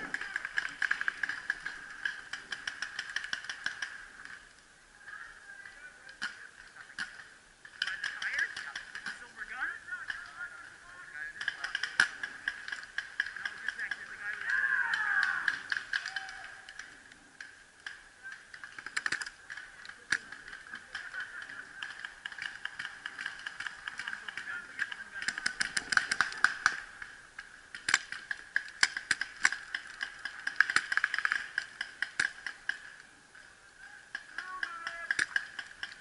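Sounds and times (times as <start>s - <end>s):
paintball markers popping: 0.0s - 4.0s, 11.4s - 27.1s, 27.7s - 33.0s, 34.1s - 36.0s.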